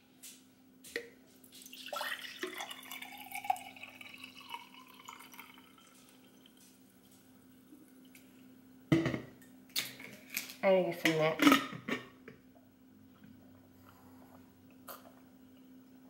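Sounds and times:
water pouring into a glass: 1.6 - 7.2.

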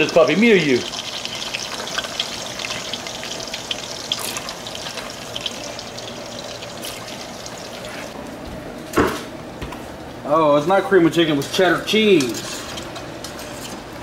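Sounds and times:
potatoes sizzling in oil: 0.0 - 8.1.

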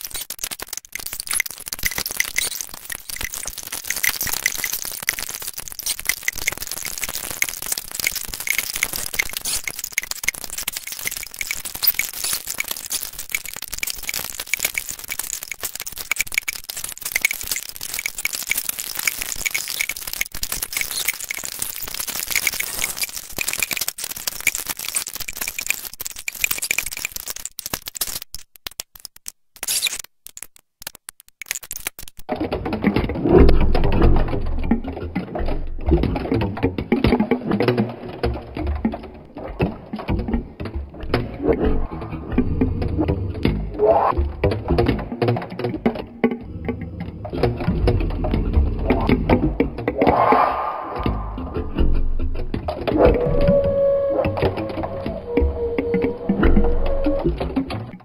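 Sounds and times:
electronic rapid clicks: 0.0 - 58.0.

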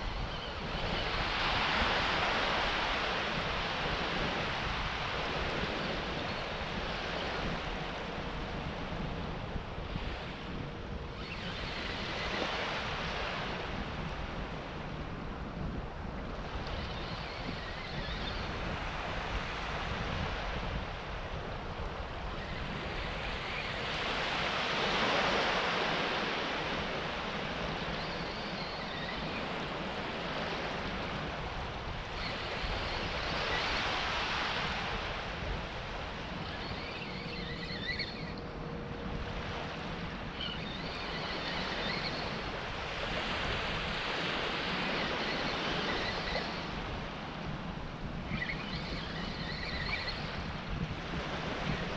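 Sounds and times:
small waves washing onto beach: 0.0 - 36.8
wind rumbling on microphone: 0.0 - 51.9.

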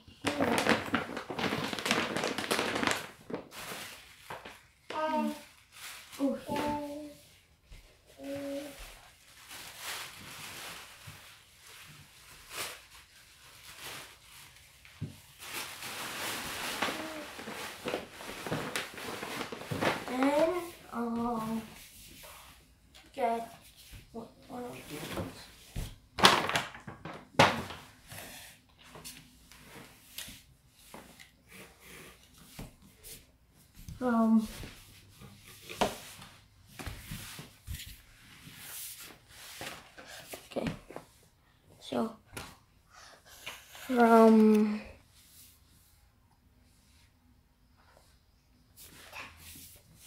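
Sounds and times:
paper bag crinkling: 0.2 - 6.8, 15.3 - 20.7, 26.2 - 27.8
tissue paper rustling: 0.2 - 7.4, 8.1 - 22.6, 28.9 - 41.2.

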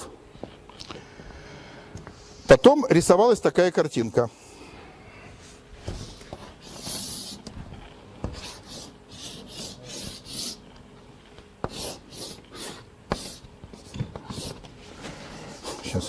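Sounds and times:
chalk scraping on blackboard: 8.3 - 10.6, 11.6 - 14.6
chalk tapping on board: 11.6 - 14.6.

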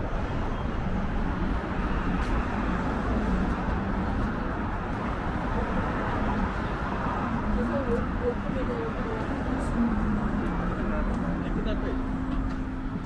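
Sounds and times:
faint voices of passers-by: 0.0 - 13.0
traffic hum: 0.0 - 13.0.

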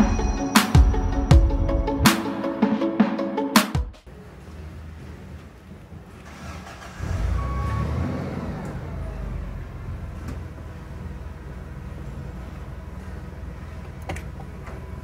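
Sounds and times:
car engine starting and idling: 4.0 - 15.0.

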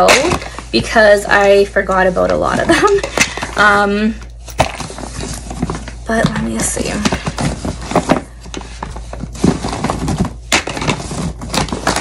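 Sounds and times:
bottles and jars clattering: 0.0 - 1.6.

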